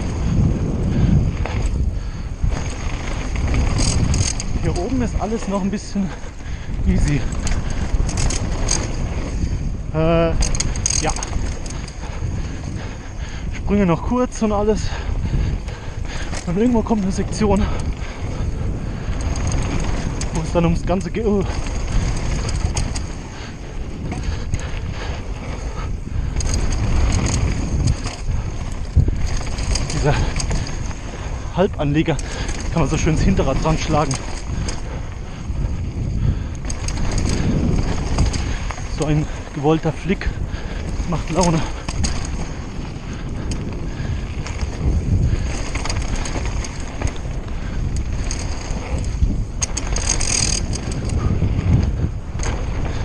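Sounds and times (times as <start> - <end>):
bike clicks and rattles: 0.0 - 53.0
tyres rumbling on dirt: 0.0 - 53.0
wind buffeting microphone: 0.0 - 53.0.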